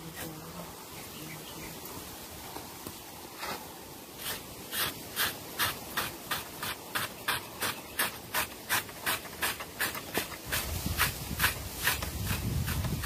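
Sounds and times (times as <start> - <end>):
knife scraping hog hide: 3.4 - 13.0.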